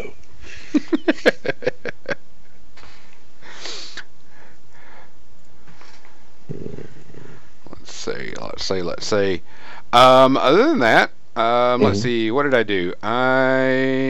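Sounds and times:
man chuckling: 0:00.5 - 0:02.2
sharp breath through nose: 0:02.8 - 0:05.2.

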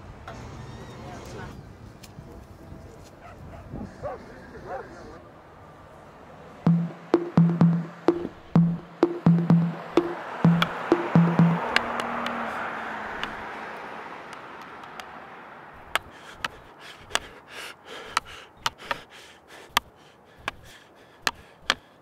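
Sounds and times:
hockey sticks clicking on ball: 0:13.2 - 0:13.4, 0:14.6 - 0:15.1, 0:15.9 - 0:17.3, 0:19.7 - 0:21.9.

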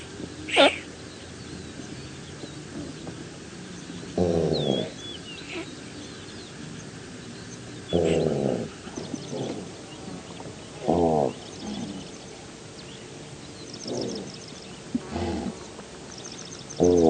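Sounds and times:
antelope calling: 0:00.0 - 0:01.0, 0:04.1 - 0:06.0
birds chirping: 0:00.0 - 0:17.0.

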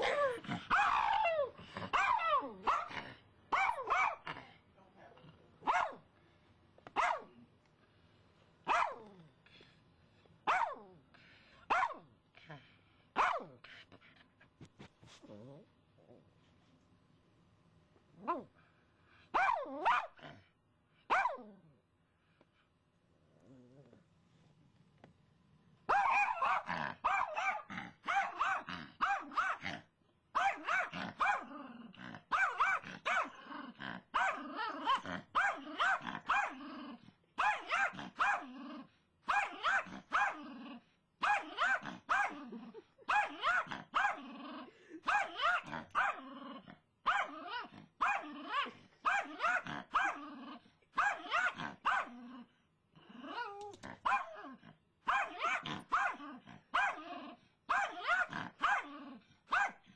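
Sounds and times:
dog barking excitedly: 0:00.0 - 0:01.3, 0:01.9 - 0:04.3, 0:05.6 - 0:06.0, 0:07.0 - 0:07.3, 0:08.6 - 0:09.0, 0:10.4 - 0:10.8, 0:11.7 - 0:12.0, 0:13.2 - 0:13.6, 0:19.3 - 0:20.2, 0:21.1 - 0:21.4, 0:25.9 - 0:31.5, 0:32.3 - 0:33.4, 0:34.1 - 0:36.6, 0:37.4 - 0:38.5, 0:39.2 - 0:40.4, 0:41.2 - 0:42.4, 0:43.1 - 0:44.2, 0:45.0 - 0:46.3, 0:47.0 - 0:50.2, 0:50.9 - 0:52.2, 0:54.0 - 0:54.4, 0:55.0 - 0:57.1, 0:57.7 - 0:58.9, 0:59.5 - 0:59.9.

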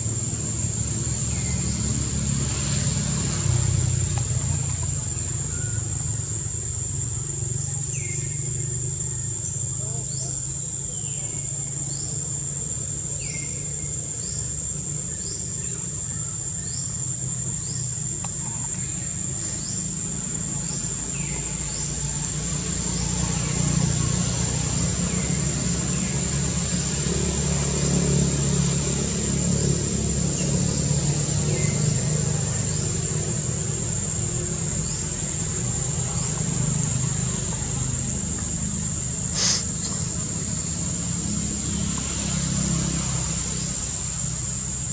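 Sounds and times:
high-pitched insect drone: 0:00.0 - 0:44.9.

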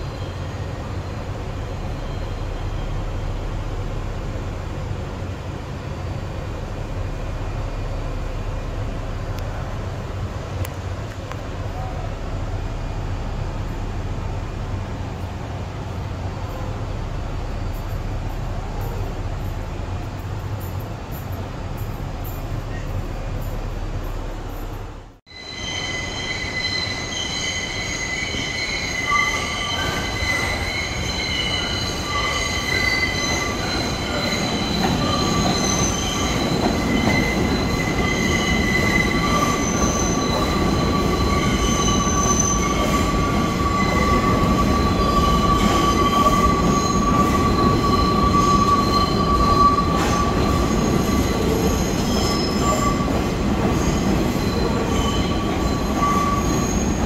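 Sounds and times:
train wheels squealing: 0:00.0 - 0:03.5, 0:20.5 - 0:57.0
train cars rumbling: 0:00.0 - 0:57.0.

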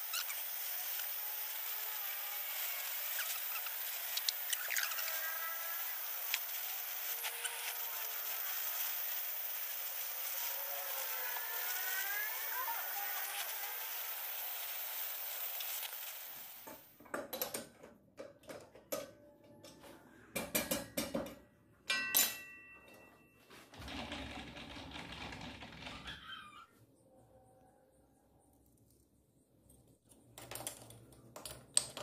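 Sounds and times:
welding torch flame hissing: 0:00.0 - 0:16.9.

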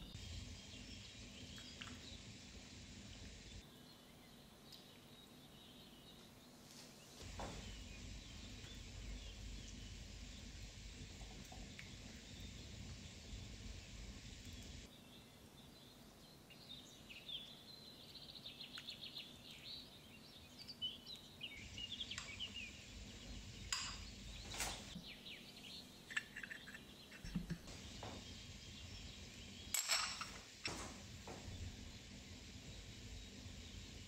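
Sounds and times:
utensils clinking on crockery: 0:23.7 - 0:24.9, 0:26.0 - 0:27.8, 0:29.7 - 0:31.0.

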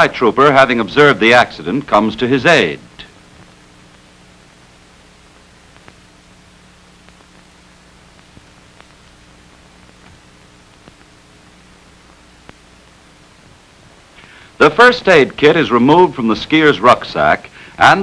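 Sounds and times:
film soundtrack hiss and hum: 0:00.0 - 0:18.0
faint clicks and pops: 0:03.3 - 0:04.2, 0:05.2 - 0:06.2, 0:06.9 - 0:11.2, 0:12.1 - 0:14.4.

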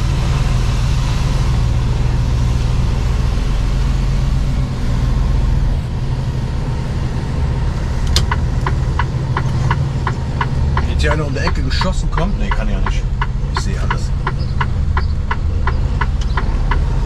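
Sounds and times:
truck diesel engine running: 0:00.0 - 0:17.0
turn indicator ticking: 0:08.0 - 0:17.0.

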